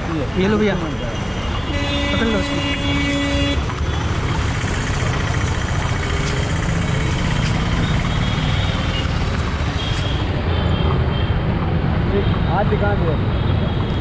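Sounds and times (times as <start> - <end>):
motor traffic: 0.0 - 14.0
horse cart wheels rumbling: 3.6 - 9.6.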